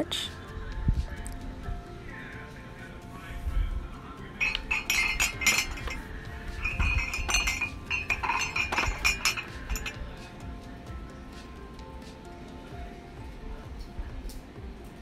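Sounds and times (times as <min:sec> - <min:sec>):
background music: 0:00.0 - 0:15.0
ceramic mugs clinking: 0:04.4 - 0:10.2.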